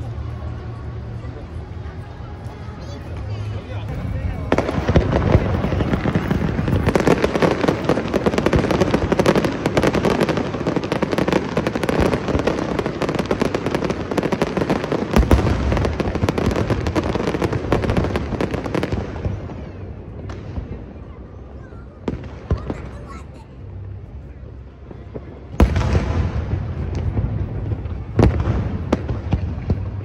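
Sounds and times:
fireworks crackling bangs: 0.0s - 30.0s
heavy low firework boom: 4.2s - 19.6s, 25.1s - 30.0s.

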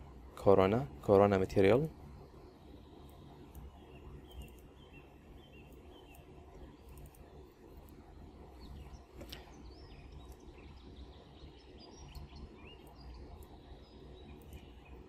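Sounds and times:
birds chirping outside: 0.0s - 15.0s
steady low hum: 0.0s - 15.0s
sharp clicks: 3.0s - 4.8s, 14.3s - 15.0s.

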